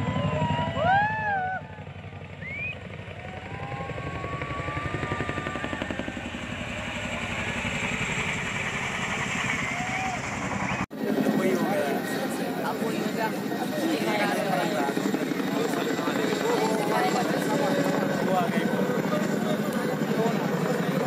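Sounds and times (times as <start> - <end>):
helicopter rotors thudding: 0.0 - 11.6.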